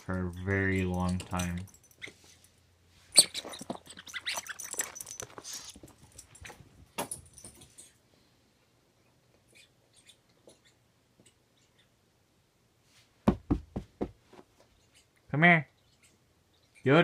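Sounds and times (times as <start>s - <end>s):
dog toy rattling and jingling: 0.0s - 2.6s, 3.4s - 8.0s.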